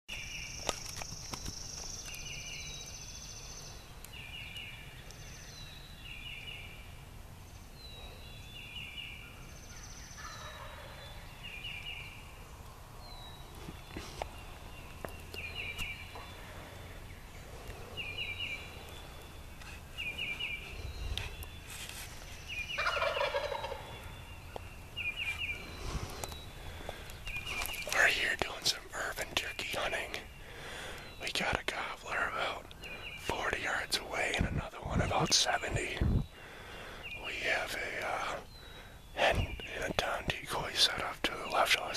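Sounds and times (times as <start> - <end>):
turkeys gobbling: 10.2 - 11.0, 22.7 - 24.0.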